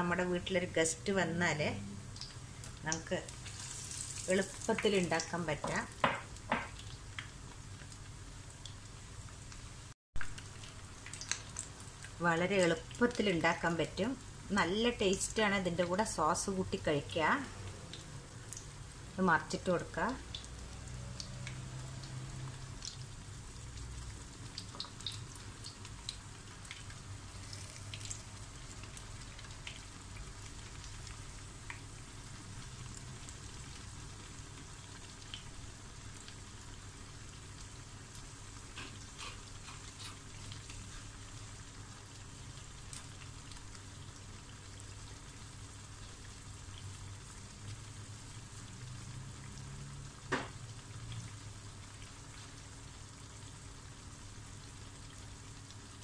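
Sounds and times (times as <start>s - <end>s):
food deep-frying in oil: 0.0s - 56.0s
oil popping and crackling: 2.1s - 13.8s, 20.1s - 53.5s.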